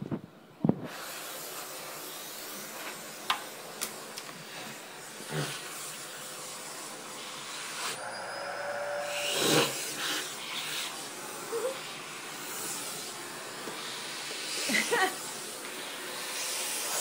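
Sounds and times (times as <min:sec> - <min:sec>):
vacuum cleaner suction hiss: 0:00.8 - 0:17.0
brief steady tone: 0:08.0 - 0:09.4.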